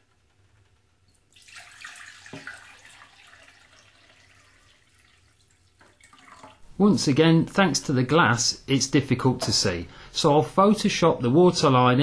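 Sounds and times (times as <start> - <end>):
water pouring into a glass jug: 1.1 - 6.7.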